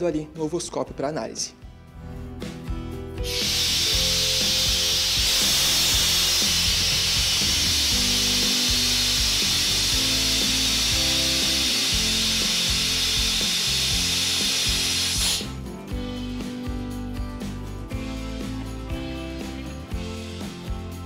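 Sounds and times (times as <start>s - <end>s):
background music: 0.0s - 21.0s
vacuum suction hiss: 3.2s - 16.6s.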